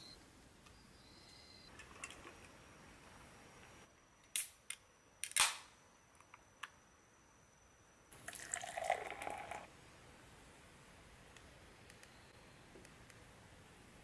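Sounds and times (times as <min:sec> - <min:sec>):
can opening crack and hiss: 0:04.3 - 0:05.7.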